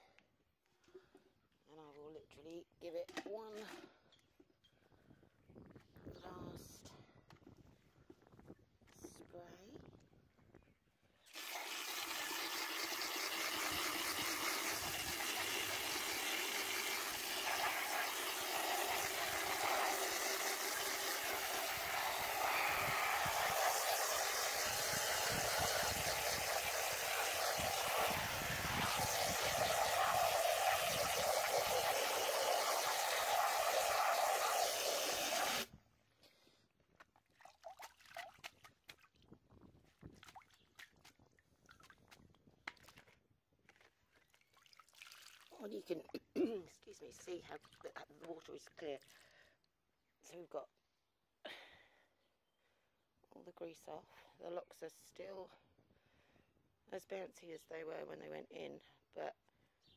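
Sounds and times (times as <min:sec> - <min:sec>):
hose nozzle spraying water: 0:11.3 - 0:35.7.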